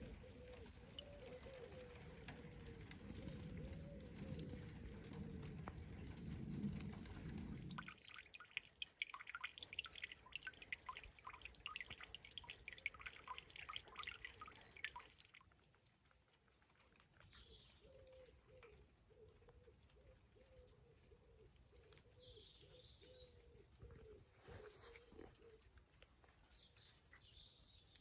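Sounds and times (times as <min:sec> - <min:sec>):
pigeon cooing: 0:00.0 - 0:07.6
water dripping into a pond: 0:00.0 - 0:24.2, 0:24.9 - 0:28.0.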